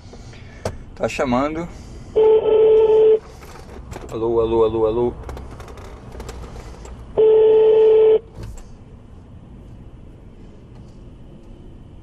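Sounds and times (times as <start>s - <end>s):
telephone ringback tone: 2.2s - 3.2s, 7.2s - 8.2s.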